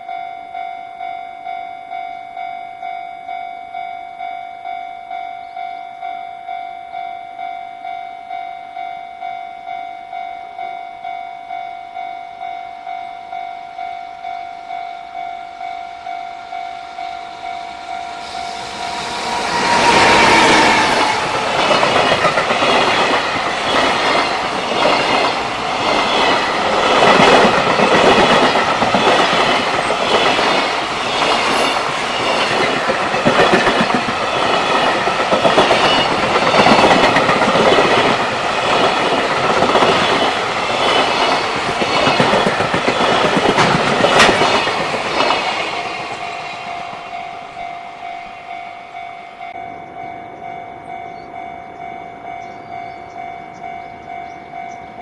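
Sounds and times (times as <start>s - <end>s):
freight train rumbling past: 14.3s - 55.0s
wheels clacking over rail joints: 18.7s - 47.1s.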